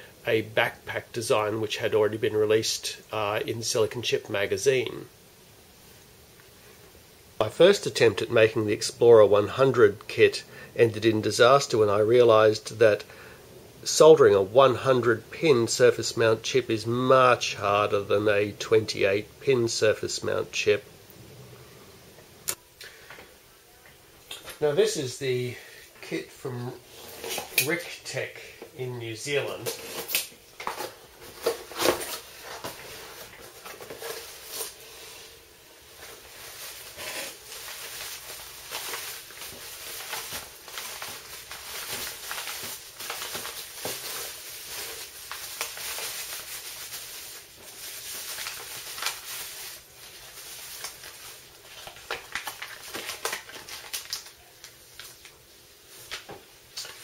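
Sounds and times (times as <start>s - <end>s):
bubble wrap and paper crinkling: 29.3s - 57.0s.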